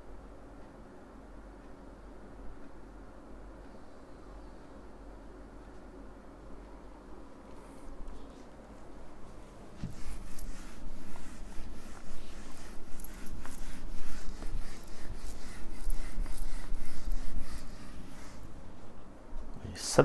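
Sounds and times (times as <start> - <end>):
eraser rubbing on whiteboard: 9.8 - 18.7.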